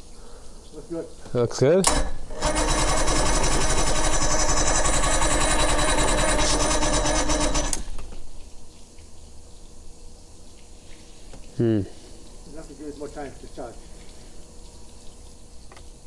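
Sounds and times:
outboard starter cranking: 1.8 - 8.0.

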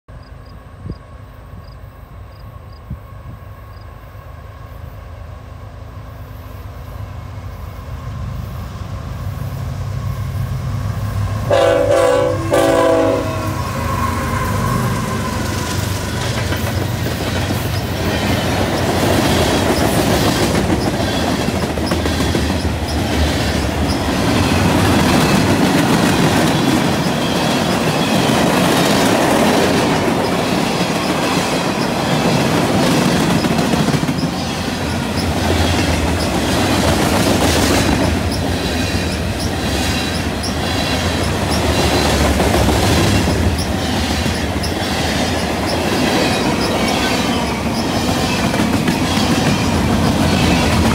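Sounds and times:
freight train wheels clacking: 9.9 - 50.9.

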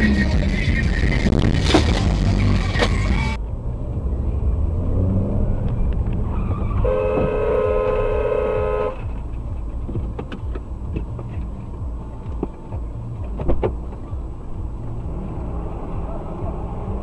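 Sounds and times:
road and engine rumble: 0.0 - 17.0
car horn held: 6.8 - 9.0.

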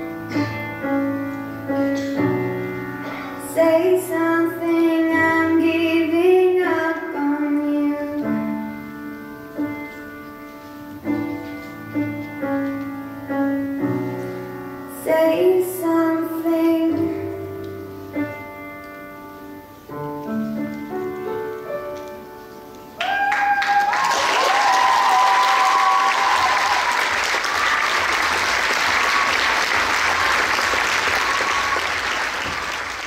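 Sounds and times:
grand piano playing: 0.0 - 23.0
audience applause: 23.0 - 33.0
high cheers: 23.0 - 33.0.

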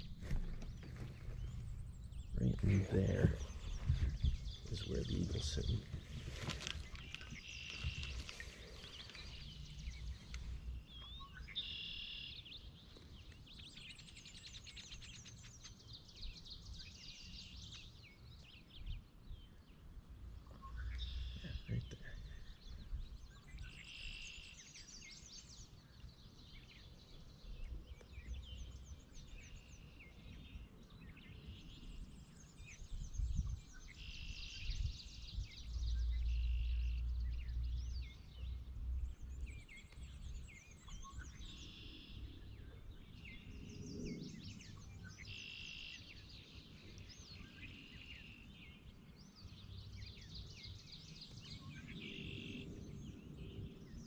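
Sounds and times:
low rumble: 0.0 - 11.6
songbirds singing: 0.0 - 54.0.

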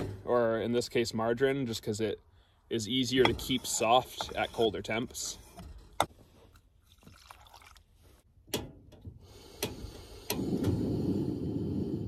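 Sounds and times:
water pouring into saucepan: 6.9 - 7.8
gas burner rushing: 9.2 - 12.0.

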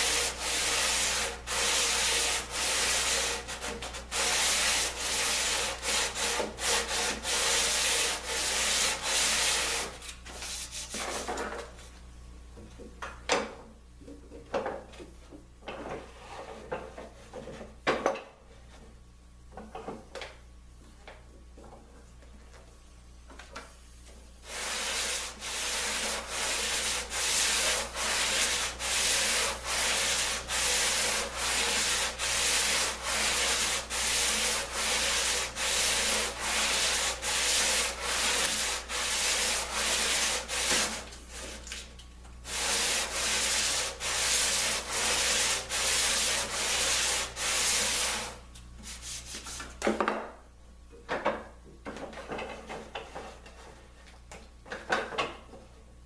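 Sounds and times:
sandpaper rubbing on plywood: 0.0 - 11.3, 24.4 - 41.6, 42.4 - 49.7.

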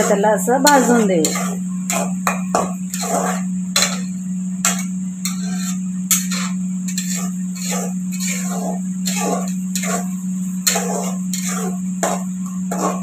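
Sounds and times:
metal spatula scraping a pan: 0.0 - 13.0
paste frying in oil: 0.0 - 13.0
steady low hum: 0.0 - 13.0.

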